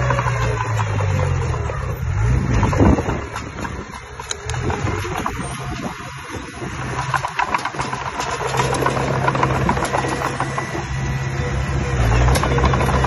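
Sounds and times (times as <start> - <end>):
diesel engine running: 0.0 - 13.0
metallic rattles and clicks: 2.6 - 11.0, 12.2 - 13.0.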